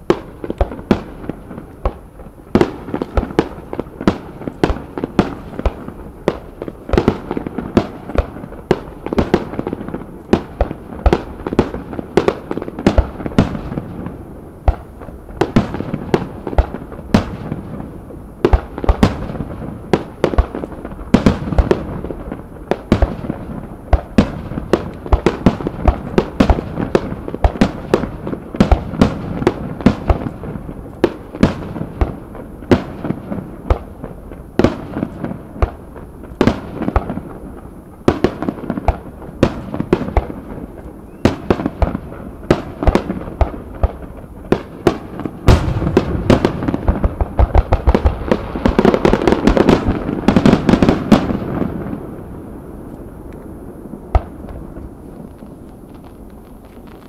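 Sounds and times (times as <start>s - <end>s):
low rumble of booms: 45.5s - 48.1s.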